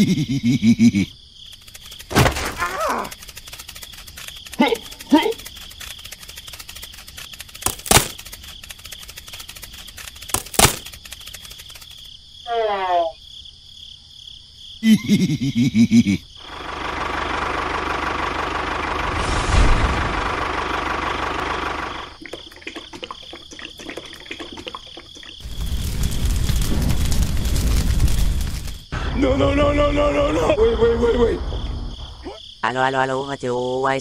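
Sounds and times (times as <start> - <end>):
steady rushing noise: 18.9 - 20.6.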